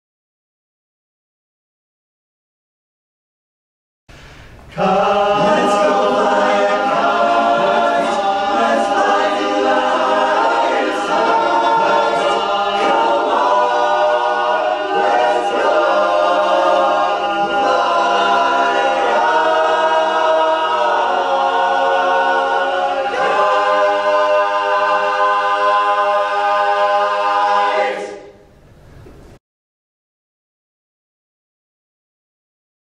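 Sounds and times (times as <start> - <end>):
men's chorus singing a cappella: 4.7 - 28.4.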